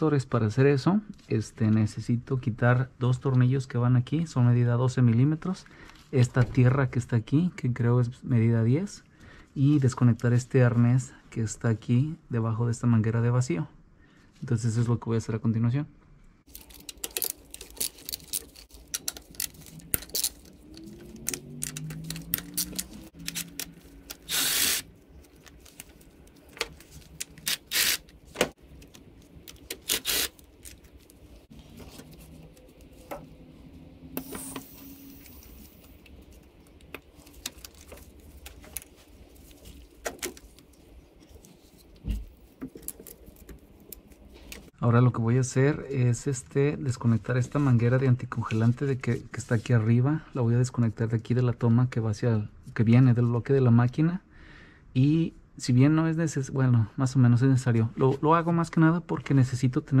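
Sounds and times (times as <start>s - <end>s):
cordless ratchet running: 21.6s - 24.9s, 27.4s - 28.0s, 29.8s - 30.4s.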